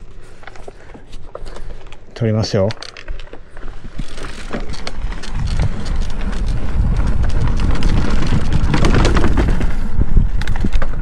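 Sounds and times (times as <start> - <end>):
bike rattling and clicking: 0.3 - 11.0
bike tyres rumbling over dirt: 3.3 - 11.0
wind buffeting microphone: 3.7 - 11.0.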